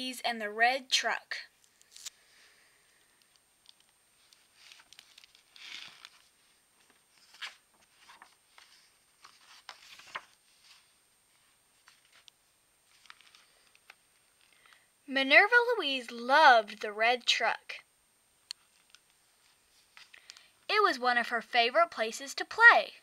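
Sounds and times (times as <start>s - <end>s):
book pages turning: 1.7s - 2.2s, 3.2s - 12.3s, 12.9s - 14.8s.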